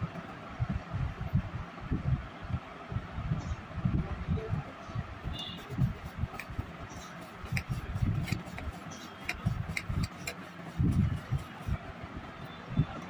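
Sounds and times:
low muffled thumps and rumble: 0:10.7 - 0:11.8.

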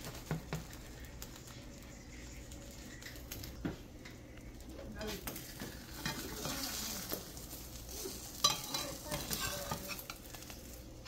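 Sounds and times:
food sizzling in frying pan: 0:00.0 - 0:11.0
spatulas scraping pan: 0:05.0 - 0:10.8.

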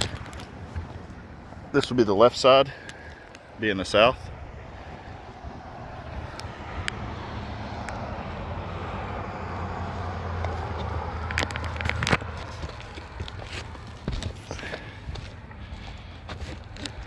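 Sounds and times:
sharp clicks and scuffs: 0:00.0 - 0:01.2, 0:10.4 - 0:17.0
vehicle engine rumble: 0:00.0 - 0:17.0.

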